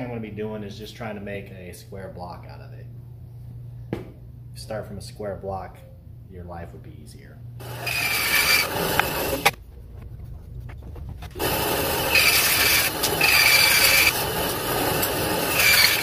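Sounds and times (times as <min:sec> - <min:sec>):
bandsaw cutting wood: 0:07.6 - 0:09.6, 0:11.4 - 0:16.0.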